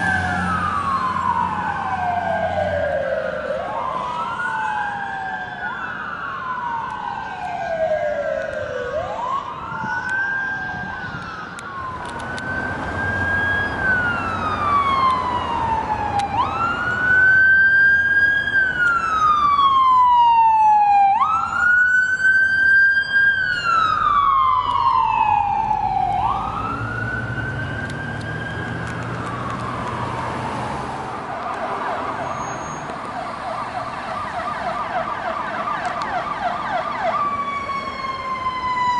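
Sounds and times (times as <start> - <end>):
truck engine: 0.0 - 3.8, 11.6 - 19.3, 23.2 - 38.0
emergency vehicle sirens wailing: 0.0 - 38.9
siren fast yelp: 13.1 - 27.6.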